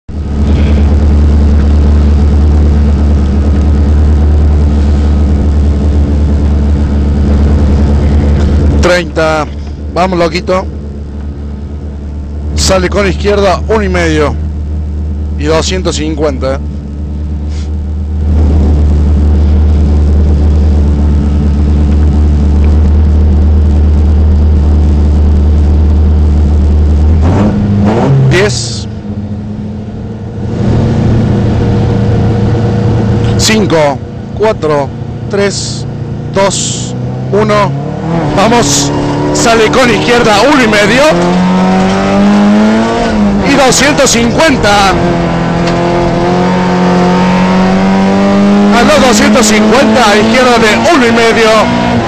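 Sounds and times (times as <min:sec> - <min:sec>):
car engine idling: 0:00.1 - 0:52.0.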